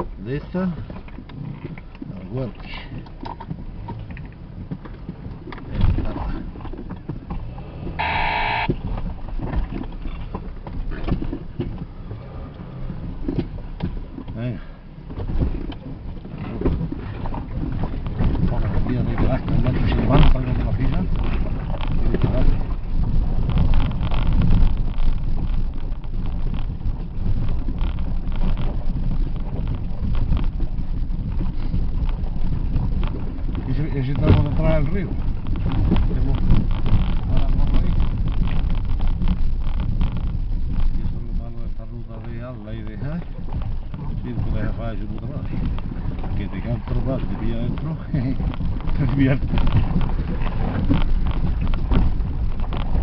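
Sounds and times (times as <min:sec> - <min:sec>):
knocks and rattles over rough ground: 0:00.0 - 0:53.0
vehicle engine rumble: 0:00.0 - 0:53.0
buzzy electronic beep: 0:08.0 - 0:08.7.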